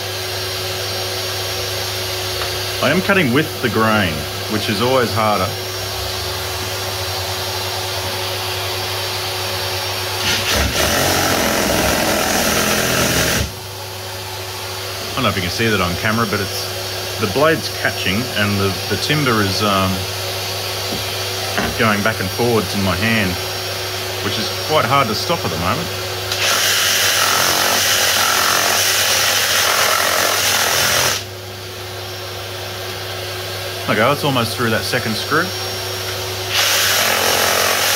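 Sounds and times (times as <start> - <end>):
reciprocating saw cutting timber: 10.2 - 13.6, 26.3 - 31.3, 36.5 - 37.9.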